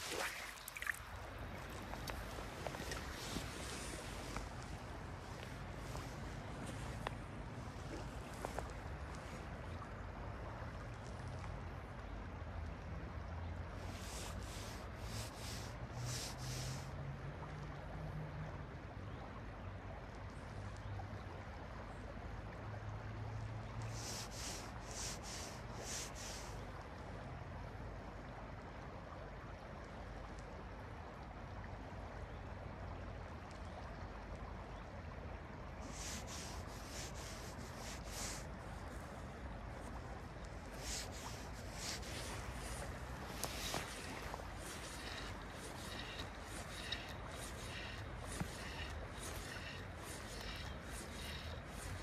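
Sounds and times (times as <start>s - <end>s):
river flowing: 0.0s - 52.0s
high rasping swishes: 35.9s - 39.1s, 40.6s - 52.0s.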